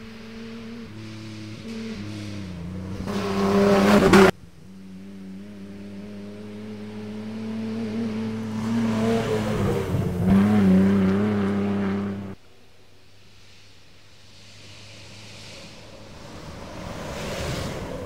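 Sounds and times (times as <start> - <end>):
rally truck passing at full throttle: 0.0 - 12.4, 14.6 - 18.0
truck engine approaching: 0.0 - 12.4
faint distant engine: 0.0 - 18.0.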